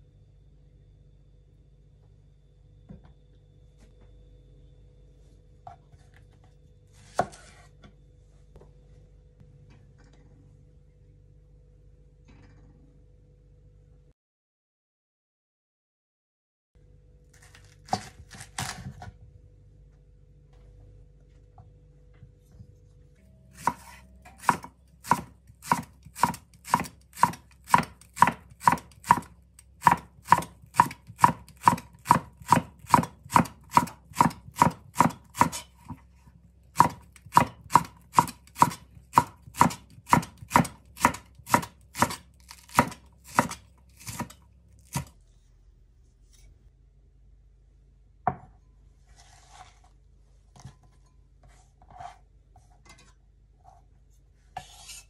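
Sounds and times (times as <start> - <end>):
knife striking cutting board: 23.5 - 36.0, 36.8 - 45.1.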